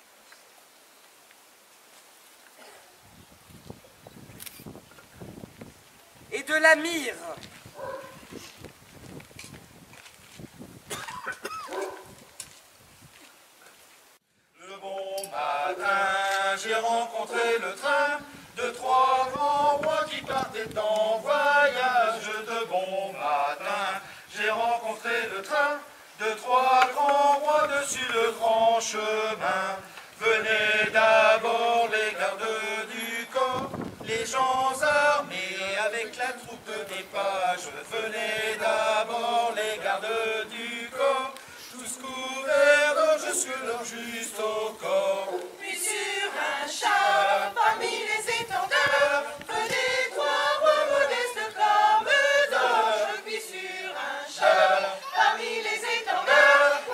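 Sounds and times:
choir singing: 0:14.6 - 0:56.9.

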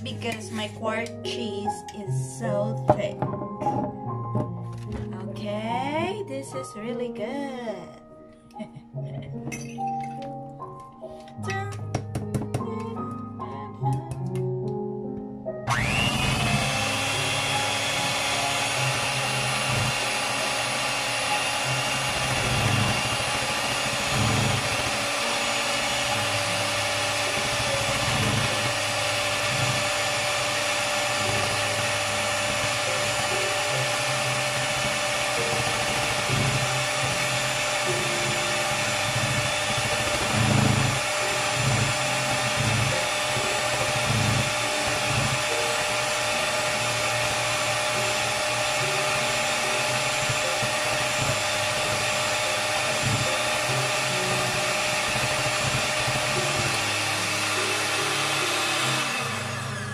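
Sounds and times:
electric mixer running: 0:15.6 - 0:59.9.

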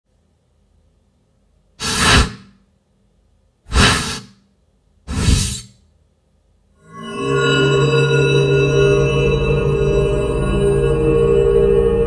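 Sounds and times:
airy whoosh bursts: 0:01.8 - 0:02.5, 0:03.7 - 0:04.3.

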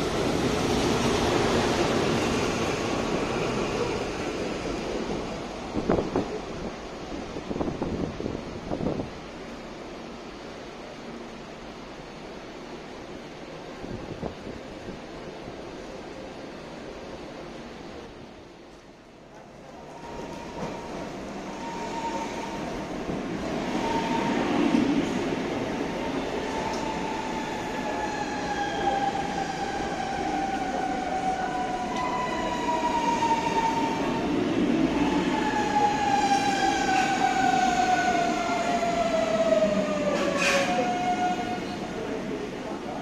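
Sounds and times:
train wheels rumbling on rails: 0:18.0 - 0:43.0
electric train whine: 0:19.7 - 0:43.0.

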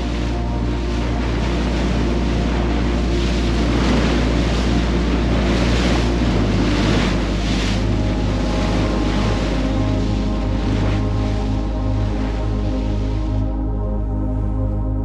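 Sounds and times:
boat engine drone: 0:00.0 - 0:15.0
water rushing along hull: 0:00.0 - 0:15.0
wind buffeting microphone: 0:00.0 - 0:15.0.

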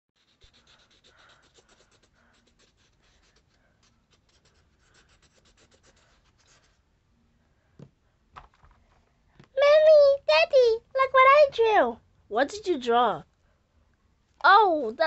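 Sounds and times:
drawing tool scribbling on paper: 0:00.2 - 0:06.8.

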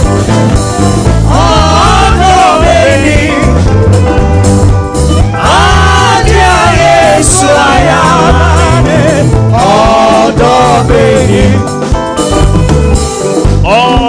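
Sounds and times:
gospel band with drums and bass: 0:00.0 - 0:14.0
person singing: 0:05.3 - 0:11.7, 0:13.6 - 0:14.0.

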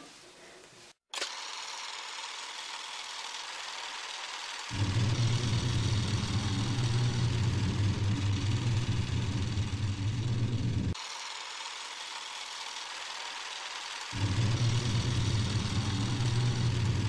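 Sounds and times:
low rumbling engine-like drone: 0:04.7 - 0:11.0, 0:14.2 - 0:17.0.

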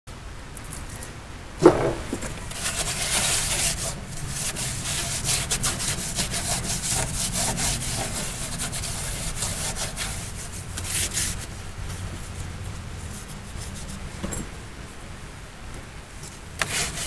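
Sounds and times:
pad scrubbing fiberglass floor: 0:01.6 - 0:14.1, 0:16.2 - 0:17.0.

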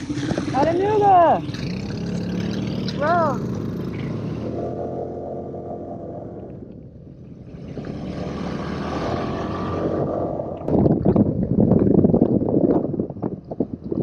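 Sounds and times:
wind buffeting microphone: 0:00.0 - 0:02.4, 0:03.0 - 0:14.0
scooter engine idling and pulling away: 0:00.0 - 0:10.6.

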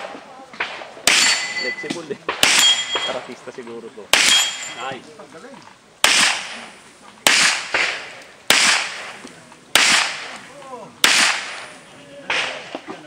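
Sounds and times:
pistol shots echoing: 0:00.0 - 0:03.3, 0:04.1 - 0:04.9, 0:06.0 - 0:10.4, 0:11.0 - 0:12.8.

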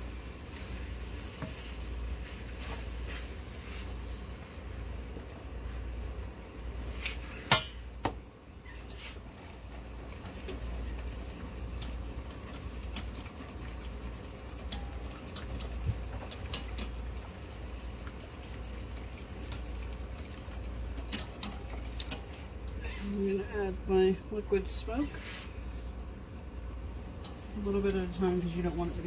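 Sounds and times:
low steady hum: 0:00.0 - 0:29.0
whisk clinking in saucepan: 0:10.4 - 0:22.4
metal tongs clacking on skillet: 0:16.5 - 0:16.9.

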